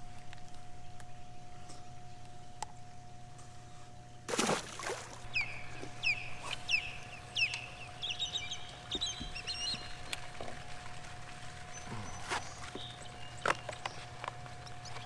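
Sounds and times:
faint steady hum: 0.0s - 15.0s
bird calling: 5.2s - 15.0s
bird twittering chatter: 5.3s - 10.3s.

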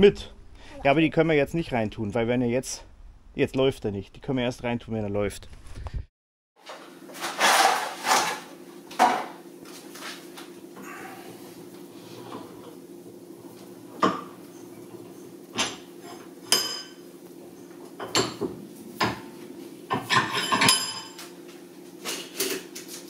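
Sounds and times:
steady low hum: 0.0s - 6.1s
metal tools clattering: 20.0s - 21.2s.

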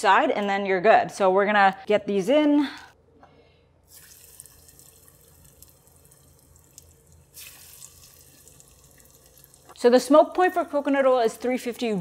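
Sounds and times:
oil sizzling and crackling: 3.9s - 9.8s.

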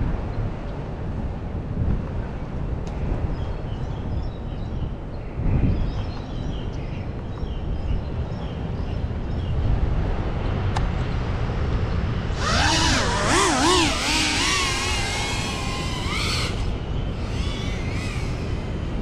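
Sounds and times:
drone motors and propellers whining: 12.0s - 19.0s.

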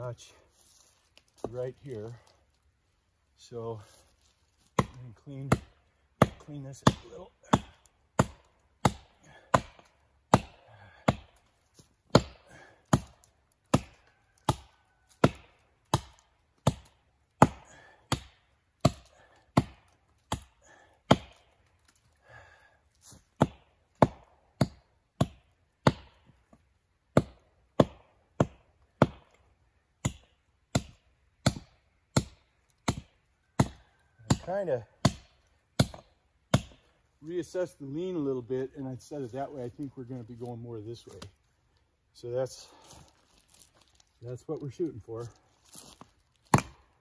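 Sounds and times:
axe chopping into tree trunk: 4.6s - 22.0s, 23.1s - 26.2s, 27.1s - 36.9s, 45.7s - 47.0s.

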